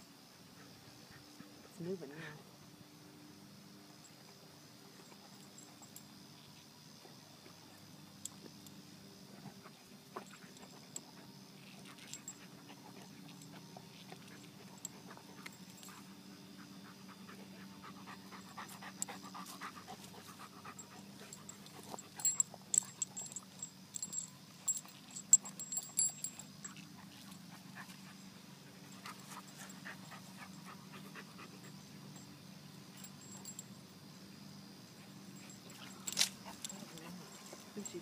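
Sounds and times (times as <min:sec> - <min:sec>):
dog panting and sniffing: 0:09.4 - 0:32.2, 0:35.0 - 0:38.0
sharp clicks and clinks: 0:20.8 - 0:26.9.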